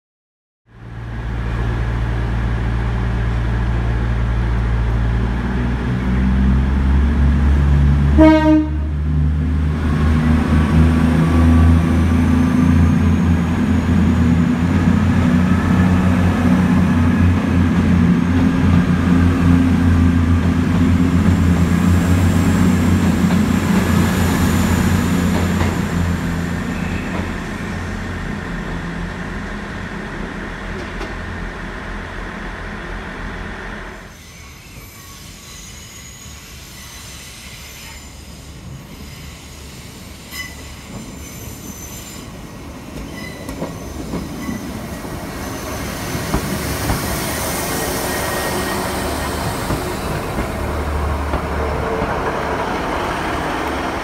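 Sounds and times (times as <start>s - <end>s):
train horn toot: 8.1s - 9.0s
diesel train engine running: 44.8s - 54.0s.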